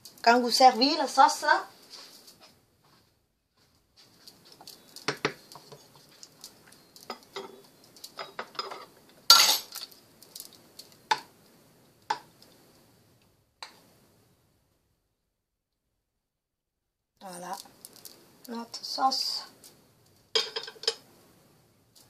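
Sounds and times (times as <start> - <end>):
utensils clinking on a saucepan: 6.8 - 9.9, 20.4 - 21.0.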